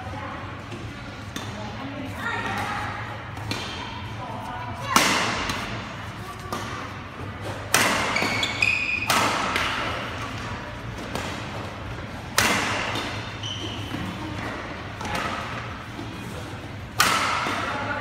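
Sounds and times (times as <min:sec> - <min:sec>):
racket hitting shuttlecock: 0:04.9 - 0:05.8, 0:07.4 - 0:11.6, 0:12.2 - 0:15.7, 0:16.9 - 0:17.8
shoes squeaking on court: 0:07.4 - 0:09.1, 0:12.9 - 0:14.7.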